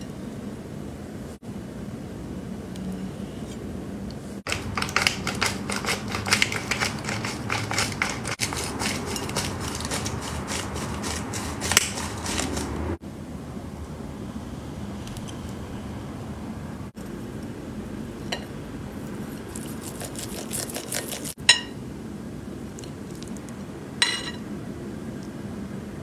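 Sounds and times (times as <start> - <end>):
pepper mill grinding: 4.5 - 13.0, 19.4 - 21.4.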